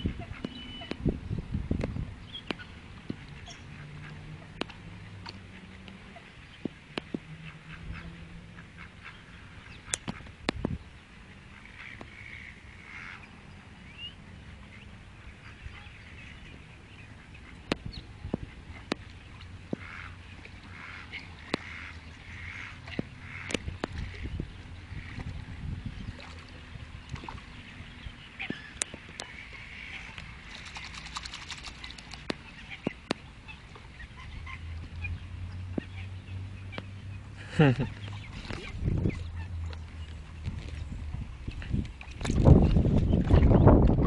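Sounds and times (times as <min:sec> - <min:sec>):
waterbirds chirping: 0:00.0 - 0:44.0
ducks quacking: 0:07.4 - 0:10.3, 0:11.5 - 0:13.4, 0:19.7 - 0:25.3, 0:28.2 - 0:39.7
dog splashing through water: 0:30.4 - 0:32.3.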